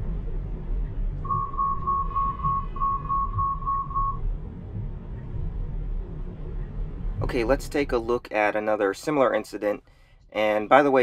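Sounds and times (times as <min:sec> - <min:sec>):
low road rumble in car cabin: 0:00.0 - 0:11.0
short warning beeps: 0:01.3 - 0:04.2.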